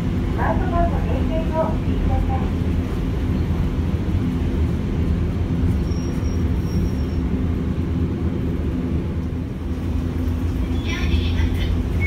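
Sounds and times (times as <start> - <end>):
tram motors growling: 0.0 - 12.0
wheels rumbling on rail: 0.0 - 12.0
faint high squeal: 5.8 - 7.3.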